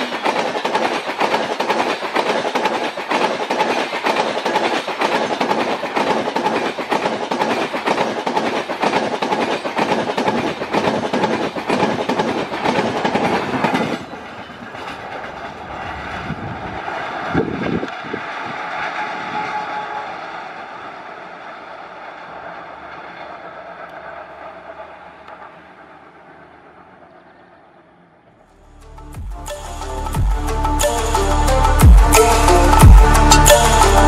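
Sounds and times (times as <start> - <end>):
train wheels clattering over rail joints: 0.0 - 19.4
distant train rumble: 0.0 - 34.0.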